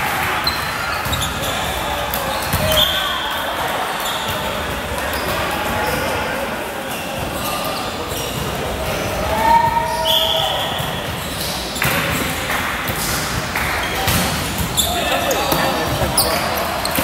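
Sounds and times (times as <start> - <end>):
players' voices in a gym: 0.0 - 17.0
shoe squeak: 0.4 - 3.2, 6.9 - 8.7, 9.4 - 12.2, 13.8 - 17.0
volleyball slaps: 11.8 - 14.8.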